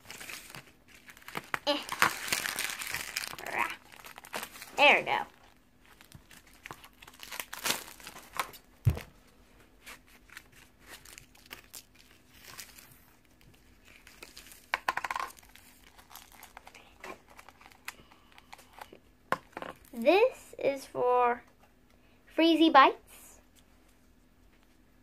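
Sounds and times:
plastic bag tearing and crinkling: 0:00.0 - 0:08.7, 0:10.2 - 0:18.0.

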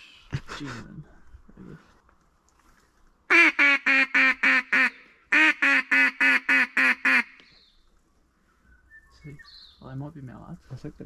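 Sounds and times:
duck call quacks: 0:03.3 - 0:07.4.

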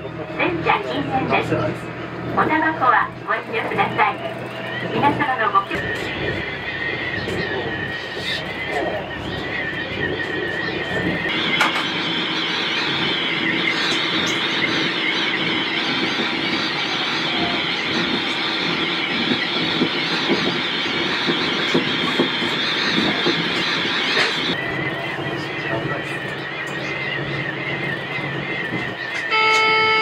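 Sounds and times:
train running: 0:00.0 - 0:30.0.

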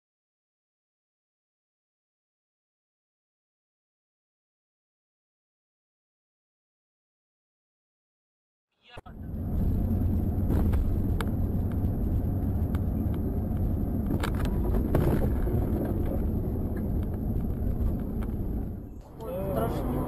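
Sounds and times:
car road and engine noise: 0:08.9 - 0:20.0.

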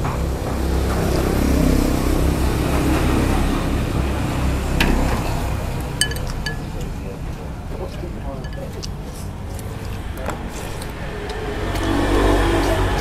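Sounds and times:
engine rumbling: 0:00.0 - 0:13.0
utensils clinking on bowls: 0:04.9 - 0:06.9, 0:08.4 - 0:08.9.

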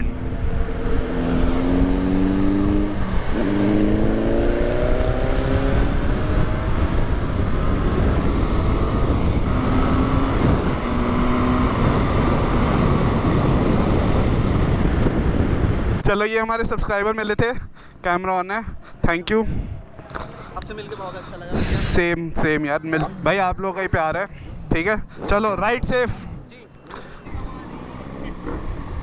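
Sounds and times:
motorcycle engine accelerating: 0:00.0 - 0:16.0, 0:26.9 - 0:29.0
wind rush on microphone: 0:00.0 - 0:17.7, 0:18.6 - 0:26.7.

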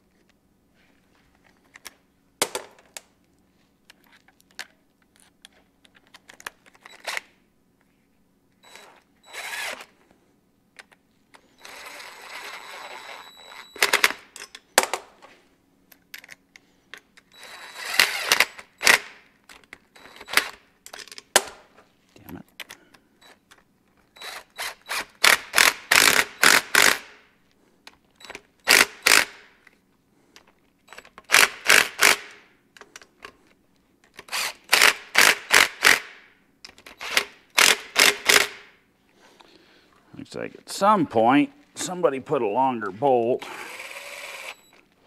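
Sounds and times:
power tool rattling with motor whine: 0:08.6 - 0:09.9, 0:11.4 - 0:14.2, 0:17.3 - 0:19.2, 0:43.4 - 0:44.7.

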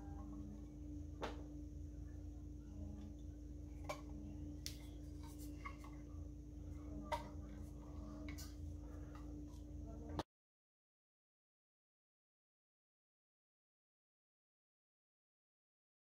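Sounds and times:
faint steady hum: 0:00.0 - 0:10.3.

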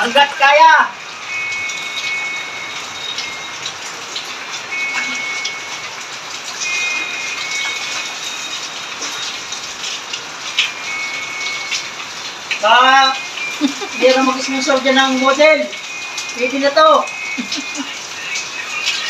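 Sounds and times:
water splashing: 0:00.0 - 0:19.0
high chirps: 0:01.1 - 0:03.7, 0:04.6 - 0:05.9, 0:06.6 - 0:09.4, 0:10.6 - 0:19.0.

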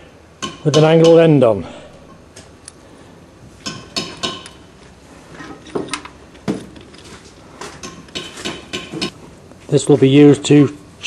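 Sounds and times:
metal clinks and taps: 0:03.6 - 0:04.6, 0:05.5 - 0:09.1.

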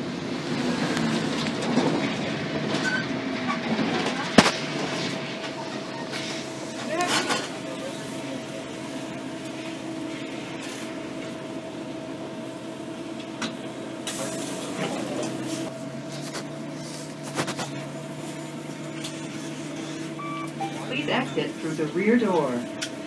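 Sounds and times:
bus engine hum: 0:00.0 - 0:23.0
bus body rattles and knocks: 0:00.6 - 0:05.6.

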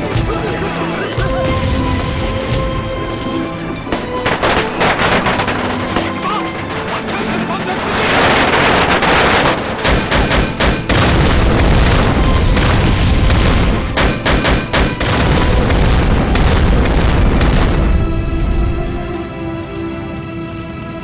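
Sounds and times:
dramatic film score: 0:00.0 - 0:21.0
explosions with low rumble: 0:01.4 - 0:06.1, 0:08.2 - 0:18.8.

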